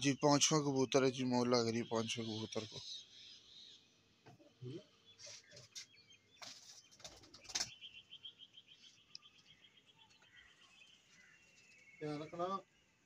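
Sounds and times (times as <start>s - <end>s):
high bird chirps: 0.0s - 3.8s, 4.6s - 12.8s
pigeon wings flapping: 6.4s - 7.7s.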